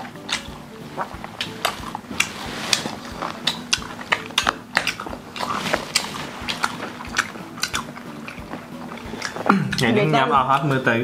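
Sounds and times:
biting and chewing: 0:00.0 - 0:10.7
metal chopsticks clicking on bowls: 0:00.2 - 0:00.6, 0:01.4 - 0:09.9.

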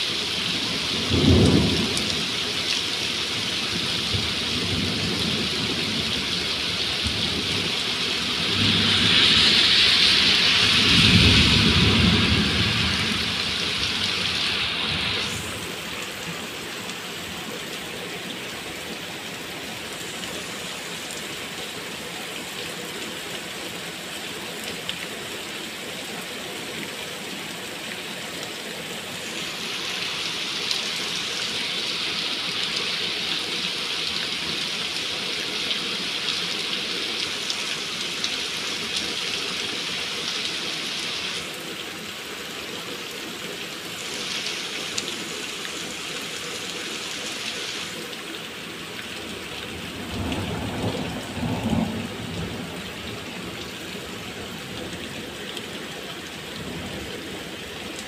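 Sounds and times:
heavy rain on wet paving: 0:00.0 - 0:58.0
low rumble of thunder: 0:03.7 - 0:15.8, 0:49.7 - 0:55.0.

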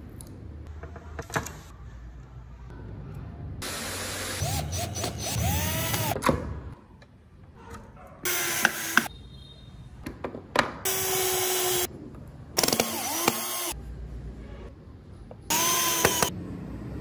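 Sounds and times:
cordless drill whining: 0:04.4 - 0:06.2, 0:12.6 - 0:13.8, 0:15.5 - 0:16.3.

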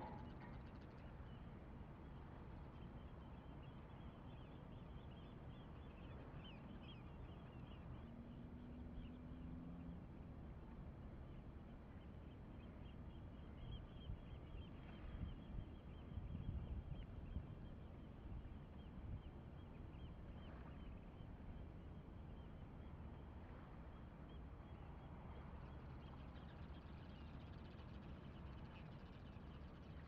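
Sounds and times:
twittering bird calls: 0:00.0 - 0:00.7.

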